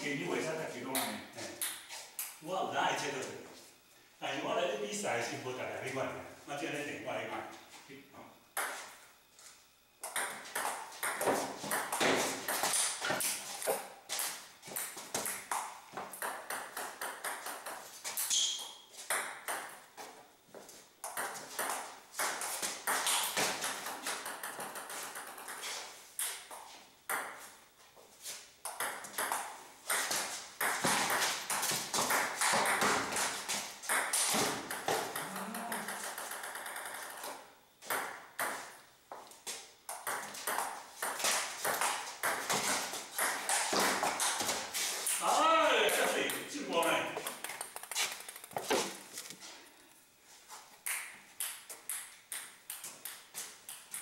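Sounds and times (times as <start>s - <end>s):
ping-pong ball clicking: 23.8s - 25.6s, 33.9s - 38.6s, 47.2s - 48.7s, 50.8s - 54.0s.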